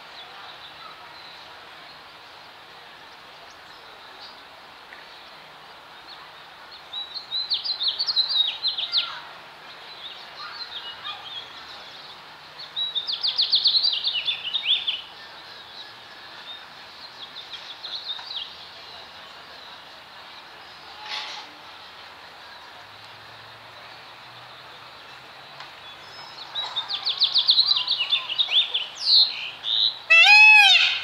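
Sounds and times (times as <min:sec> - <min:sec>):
steady outdoor hiss: 0:00.0 - 0:31.0.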